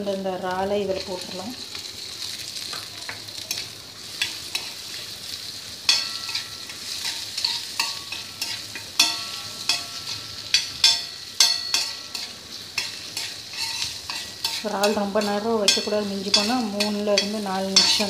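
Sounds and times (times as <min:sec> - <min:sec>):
food sizzling in a pan: 0:00.0 - 0:18.0
spatula clinking against pan: 0:05.9 - 0:18.0.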